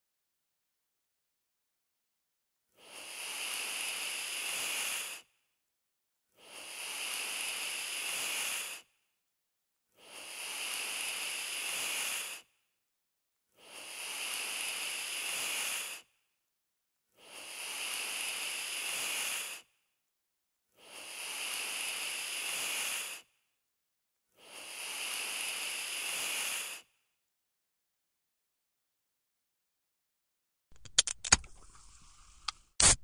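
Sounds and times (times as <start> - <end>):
snake hissing: 2.8 - 5.2, 6.4 - 8.8, 10.0 - 12.4, 13.6 - 16.0, 17.2 - 19.6, 20.8 - 23.2, 24.4 - 26.8.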